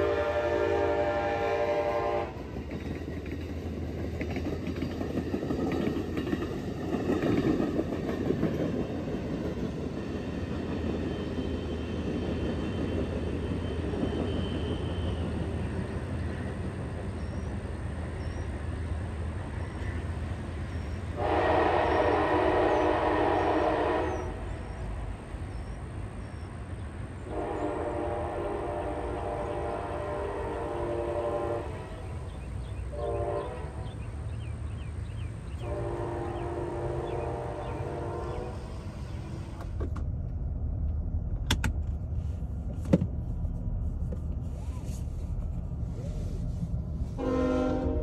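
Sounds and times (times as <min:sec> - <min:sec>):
train horn blasts: 0:00.0 - 0:02.5, 0:21.1 - 0:24.7, 0:27.2 - 0:34.2, 0:35.6 - 0:39.2, 0:47.0 - 0:48.0
train cars rolling rumble: 0:00.0 - 0:48.0.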